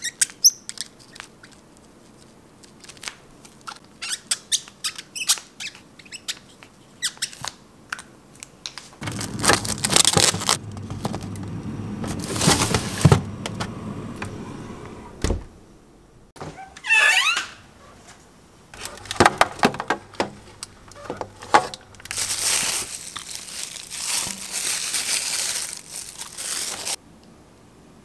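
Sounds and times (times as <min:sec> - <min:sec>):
plastic trays clicking and crinkling: 0:07.4 - 0:11.5, 0:18.8 - 0:27.0
freezer hum: 0:09.0 - 0:16.5, 0:18.7 - 0:27.0
freezer door thud: 0:12.0 - 0:13.7, 0:18.8 - 0:21.8
trays scraping into drawer: 0:12.0 - 0:15.2.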